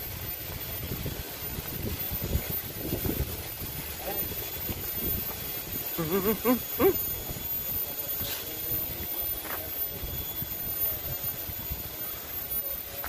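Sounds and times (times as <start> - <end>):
short burst of voice: 6.0 - 7.0.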